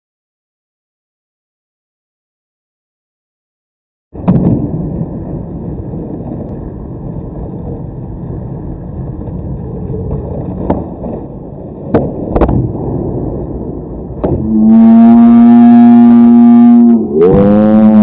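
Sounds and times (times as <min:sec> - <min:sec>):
skateboard wheels rolling on asphalt: 0:04.2 - 0:14.5
skateboard clacks: 0:07.2 - 0:12.8.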